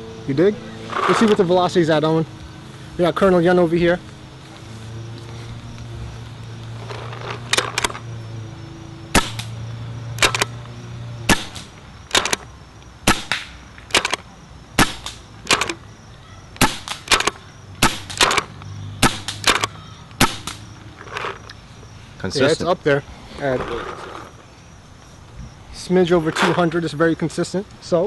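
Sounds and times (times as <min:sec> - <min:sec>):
paintball marker pops: 0:13.1 - 0:14.1.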